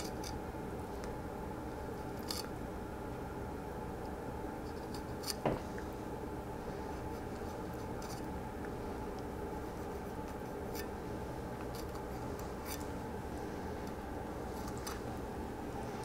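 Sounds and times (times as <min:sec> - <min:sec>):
steady background hum: 0:00.0 - 0:16.0
knife cutting and scraping fish: 0:04.6 - 0:05.5, 0:09.7 - 0:10.9, 0:11.6 - 0:12.9.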